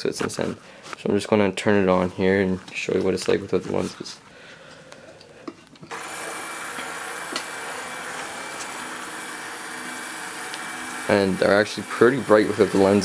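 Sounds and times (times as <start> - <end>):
rotator motors whirring: 5.9 - 13.0.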